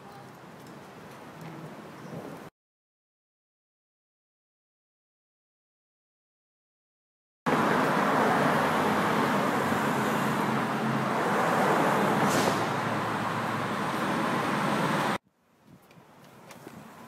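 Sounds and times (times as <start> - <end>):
loud city street traffic: 7.5 - 15.2
brief high hiss: 12.2 - 12.8.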